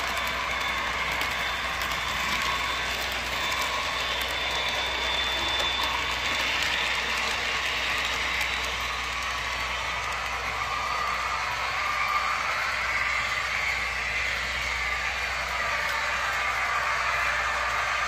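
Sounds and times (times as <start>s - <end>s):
model train wheels clattering on rail: 0.0s - 10.7s.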